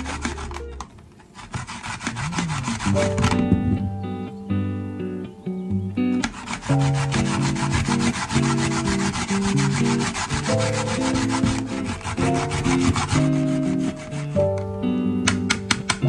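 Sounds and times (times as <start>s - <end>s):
radish grating scrapes: 0.0s - 3.5s, 6.2s - 14.5s.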